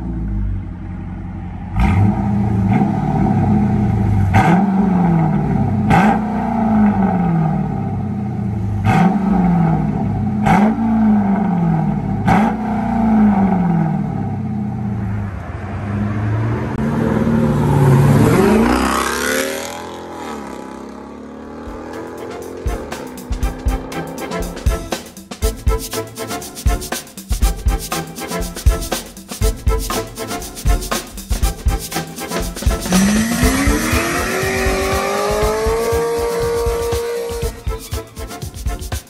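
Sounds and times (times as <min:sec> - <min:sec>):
car accelerating away: 0:00.0 - 0:24.3, 0:32.8 - 0:37.6
car engine revving: 0:00.0 - 0:26.4, 0:27.4 - 0:38.4.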